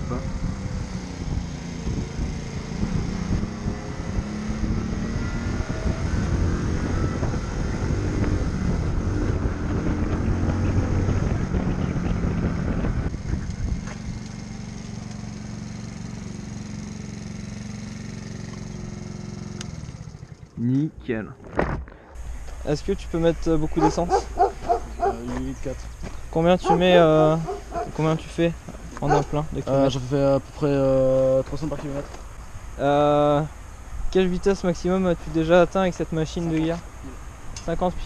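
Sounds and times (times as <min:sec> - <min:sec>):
small motorcycle engine revving: 0:00.0 - 0:20.6, 0:23.6 - 0:28.2.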